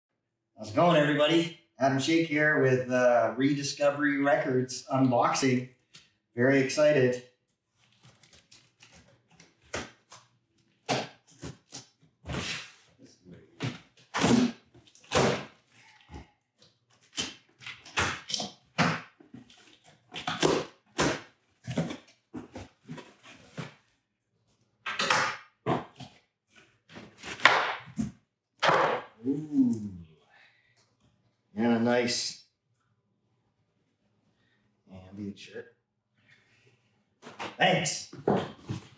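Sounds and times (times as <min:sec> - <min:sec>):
packing tape ripping off cardboard: 0:07.7 - 0:12.9, 0:13.6 - 0:16.0.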